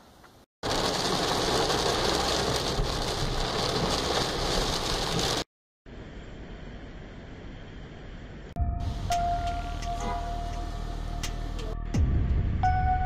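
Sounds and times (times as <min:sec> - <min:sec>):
heavy rain on car: 0:00.6 - 0:05.5.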